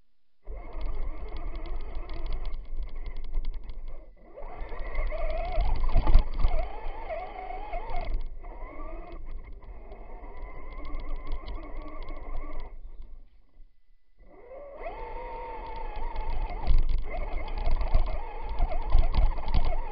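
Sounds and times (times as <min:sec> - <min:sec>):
electric motor whining: 0:00.4 - 0:13.2, 0:14.2 - 0:19.9.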